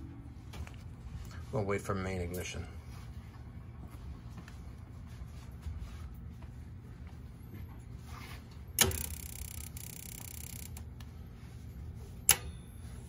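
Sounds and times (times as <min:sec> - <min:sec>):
boiler control sharp clicks: 0:08.8 - 0:10.9.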